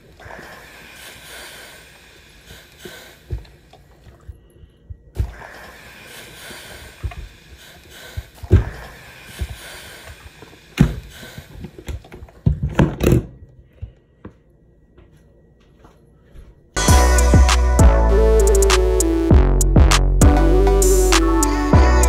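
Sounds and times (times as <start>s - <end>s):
faint steady hiss: 0.0s - 12.4s
knocks and thumps: 11.9s - 14.0s.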